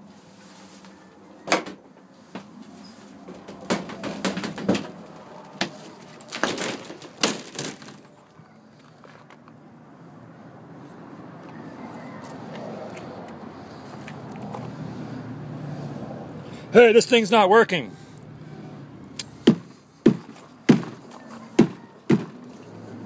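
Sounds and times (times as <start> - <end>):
plastic door and latch clacking: 5.6 - 8.1.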